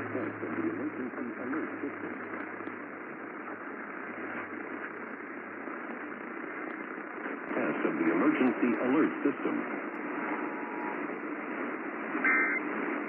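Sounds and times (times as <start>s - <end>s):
radio broadcast speech: 0.0s - 5.2s, 7.2s - 13.0s
radio static hiss: 0.0s - 13.0s.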